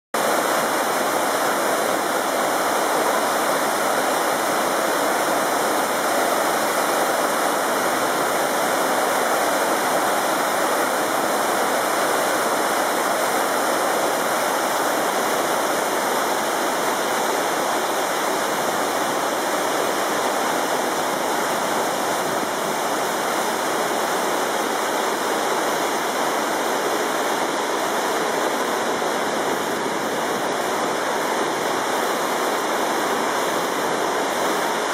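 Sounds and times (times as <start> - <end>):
waterfall roaring: 0.2 - 34.9.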